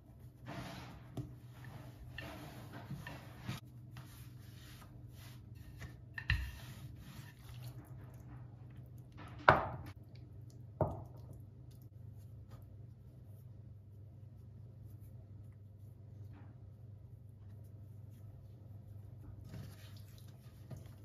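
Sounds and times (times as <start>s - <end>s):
rolling pin rolling dough: 0.0s - 8.8s.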